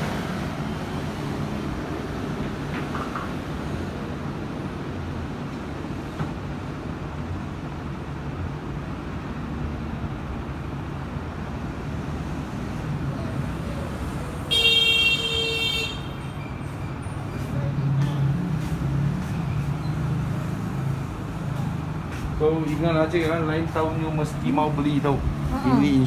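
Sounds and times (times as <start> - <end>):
low rumble of road traffic: 0.0 - 26.0
car horn: 14.5 - 16.2.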